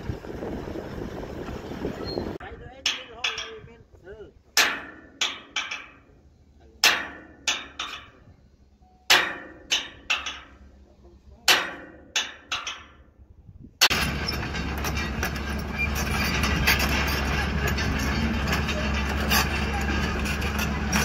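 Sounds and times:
excavator diesel engine running: 0.0 - 2.4, 13.9 - 21.0
hammer striking metal: 4.6 - 6.1, 6.8 - 8.2, 9.0 - 10.7, 11.4 - 13.1.

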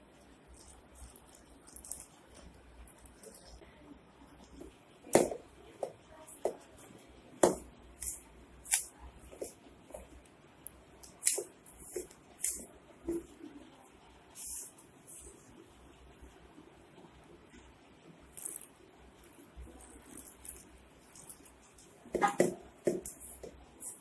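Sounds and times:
dry dough rustling: 0.0 - 4.8, 17.5 - 22.0.

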